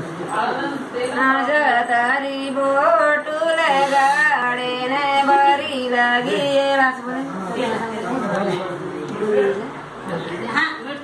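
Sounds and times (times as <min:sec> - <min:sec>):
women singing: 0:01.1 - 0:07.4.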